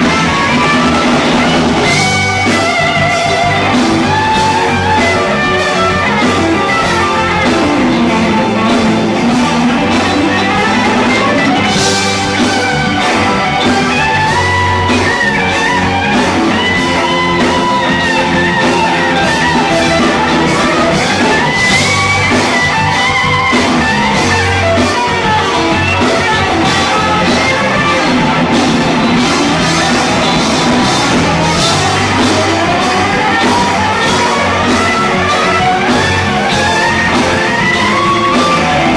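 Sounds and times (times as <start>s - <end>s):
lead guitar sliding and bending: 0.0s - 38.9s
rock band playing: 0.0s - 38.9s.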